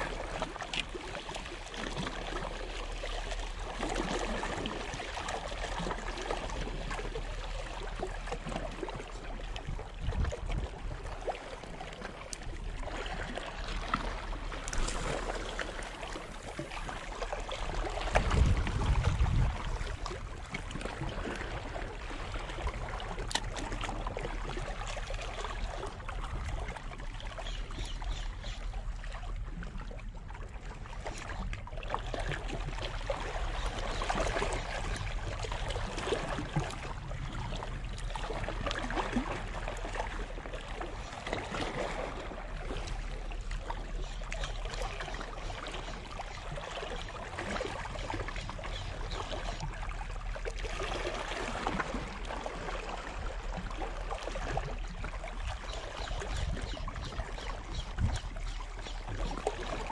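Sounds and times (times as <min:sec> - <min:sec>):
wind on microphone: 0:09.6 - 0:11.0, 0:14.6 - 0:22.7, 0:56.0 - 0:58.6
small waves washing against rocks: 0:12.8 - 0:21.6.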